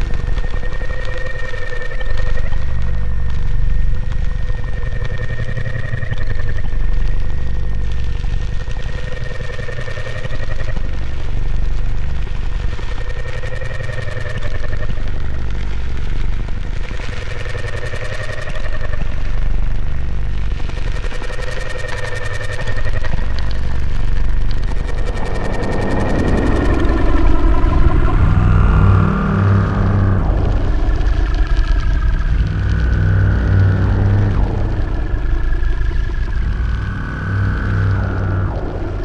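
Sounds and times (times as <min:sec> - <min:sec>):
pulsing low drone rumble: 0:00.0 - 0:39.0
sustained wavering tones: 0:22.0 - 0:39.0.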